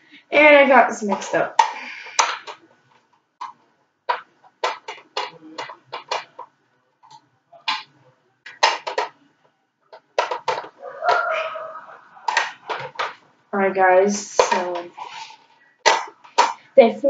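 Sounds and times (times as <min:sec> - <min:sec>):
plastic clicks and rattles: 0:08.5 - 0:09.2, 0:09.9 - 0:10.8.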